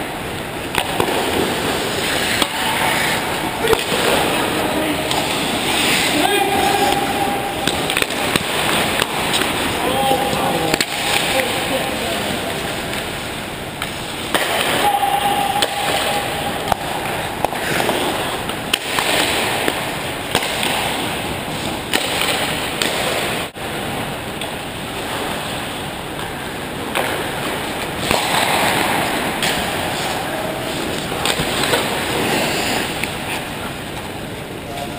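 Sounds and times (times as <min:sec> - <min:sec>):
hockey sticks and puck clacking: 0:00.6 - 0:12.1, 0:13.8 - 0:23.6, 0:26.9 - 0:34.1
skates scraping on ice: 0:00.8 - 0:12.0, 0:28.0 - 0:33.5.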